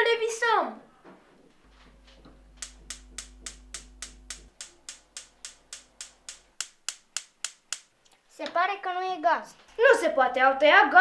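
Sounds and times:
gas stove spark igniter clicking: 2.2 - 7.9.

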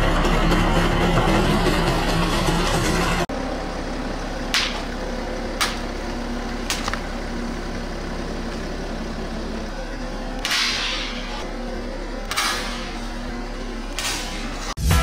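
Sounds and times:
car engine idling: 0.0 - 14.8.

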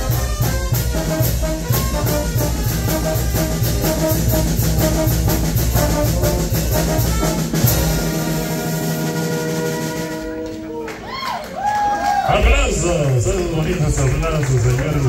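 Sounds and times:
horns holding chord: 0.0 - 10.9
brass band playing dance tune: 0.0 - 11.0, 12.3 - 15.0
drums: 0.0 - 15.0.

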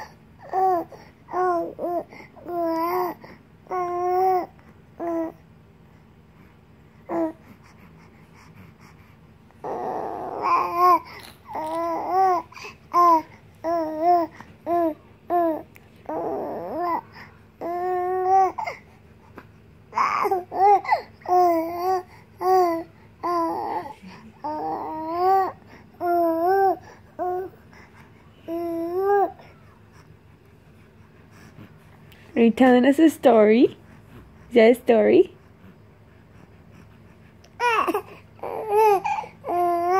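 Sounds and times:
baby cooing and babbling: 0.0 - 5.4, 7.0 - 7.6, 9.5 - 19.0, 19.9 - 30.1, 37.5 - 39.9.

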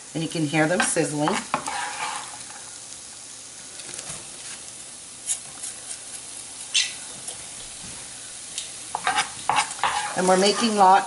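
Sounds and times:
onion sizzling in oil: 0.0 - 11.0
spatula scraping pan: 0.6 - 2.7, 8.9 - 11.0.

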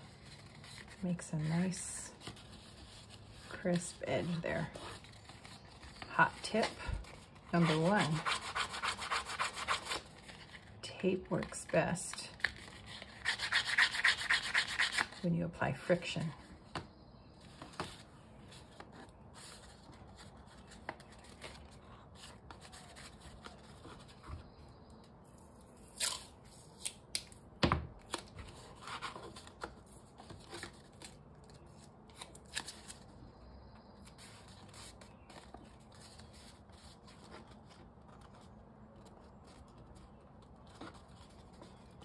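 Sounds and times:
paper rustling and crinkling: 0.0 - 8.1, 9.9 - 13.3, 16.6 - 24.5, 28.0 - 33.2, 34.0 - 42.0.

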